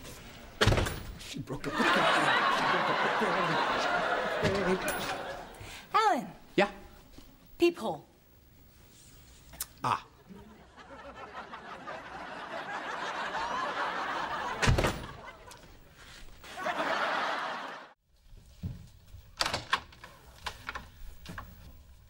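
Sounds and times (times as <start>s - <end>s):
studio audience laughing: 1.6s - 5.7s, 10.2s - 18.0s.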